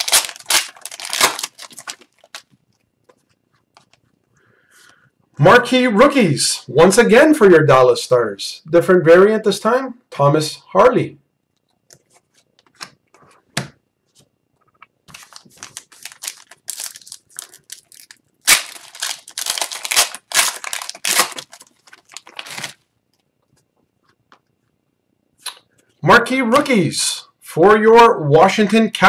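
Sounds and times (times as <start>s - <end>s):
wrapper tearing and crinkling: 0.0s - 2.6s, 15.1s - 22.8s.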